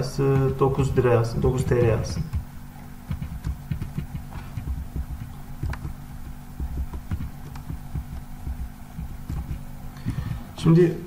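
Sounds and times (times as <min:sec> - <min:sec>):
steady low hum: 0:00.0 - 0:11.0
keyboard typing: 0:00.2 - 0:10.4
mouse clicking: 0:00.3 - 0:01.0, 0:03.1 - 0:10.3.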